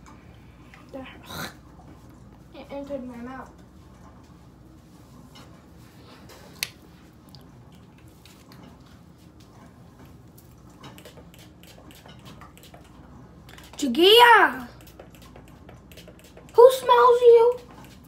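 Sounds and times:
ceiling fan running: 0.0s - 18.0s.

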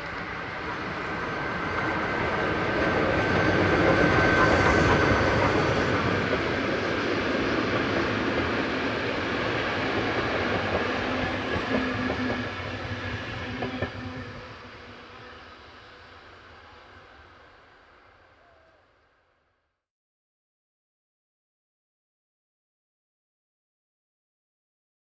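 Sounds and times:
steam locomotive passing: 0.0s - 19.3s
train wheels clattering on rail joints: 1.6s - 14.5s.

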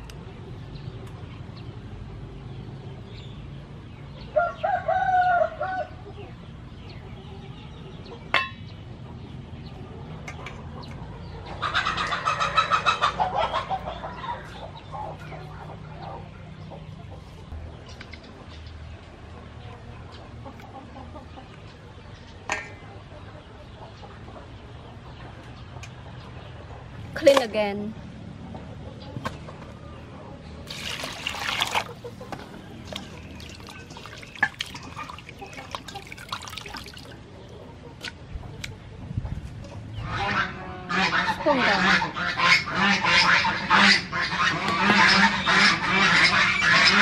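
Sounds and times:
bird calling: 30.7s - 37.8s.

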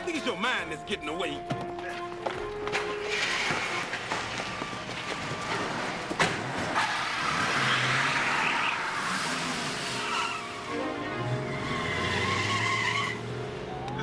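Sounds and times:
tyres squealing: 1.8s - 13.3s
car engine revving: 6.4s - 14.0s.

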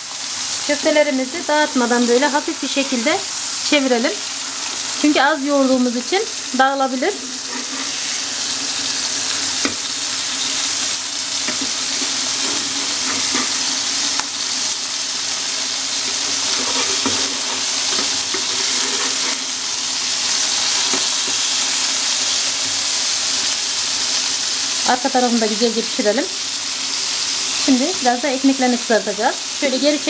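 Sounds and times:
burger patties sizzling in oil: 0.0s - 30.0s
spatula tapping and scraping: 11.4s - 13.6s, 16.0s - 19.5s.

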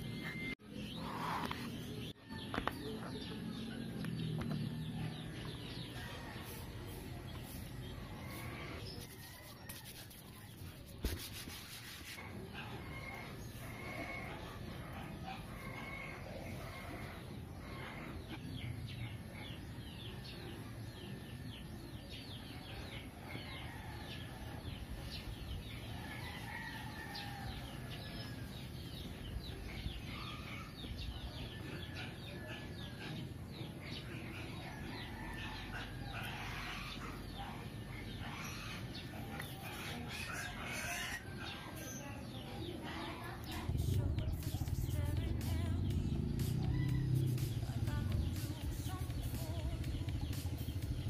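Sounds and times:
chickens calling: 12.1s - 51.0s.

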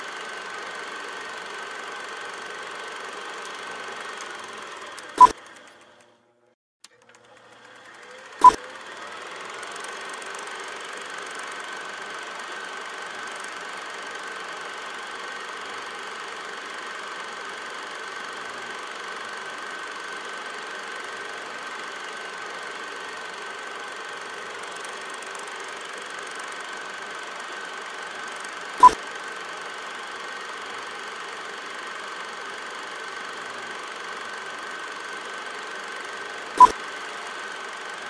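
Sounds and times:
small motor whirring with whine: 0.0s - 38.0s.

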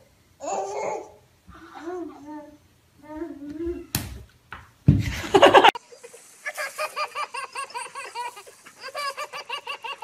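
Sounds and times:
baby laughing: 5.7s - 10.0s.

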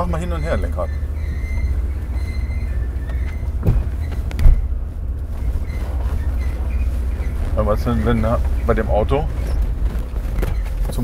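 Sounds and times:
wheel scraping squeal: 0.0s - 4.7s, 5.3s - 11.0s
van running noise from inside: 0.0s - 11.0s
thump: 3.6s - 4.7s.

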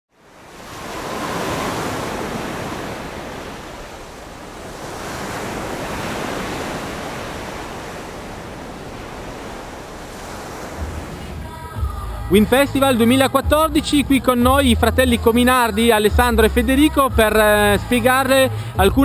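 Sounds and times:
waves washing on shore: 0.1s - 11.8s.

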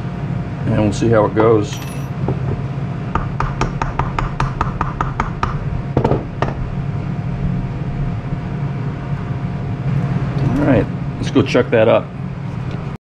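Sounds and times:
steady low hum: 0.0s - 13.0s
mallet tapping on metal: 3.2s - 6.6s.

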